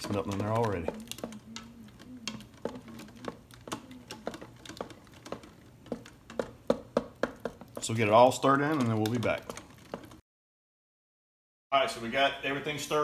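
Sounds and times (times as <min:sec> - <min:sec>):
utensil scraping metal pot: 0:00.0 - 0:10.2.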